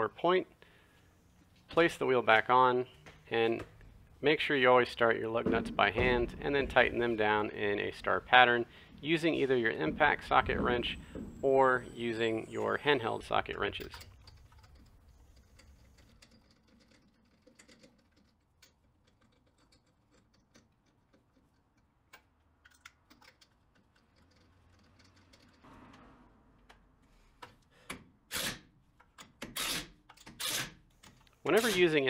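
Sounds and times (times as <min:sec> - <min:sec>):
impact wrench bursts: 0:28.3 - 0:28.7, 0:29.4 - 0:30.9, 0:31.5 - 0:32.0.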